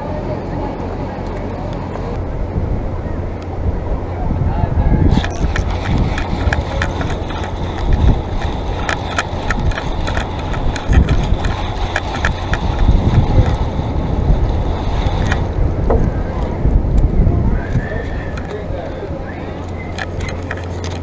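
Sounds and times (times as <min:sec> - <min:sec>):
wind buffeting microphone: 0:00.2 - 0:21.0
small sharp clicks: 0:05.1 - 0:13.6.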